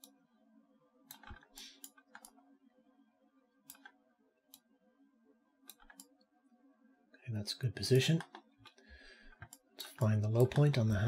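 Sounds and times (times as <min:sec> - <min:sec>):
low steady hum: 0:00.0 - 0:11.0
faint computer mouse clicks: 0:01.1 - 0:02.4.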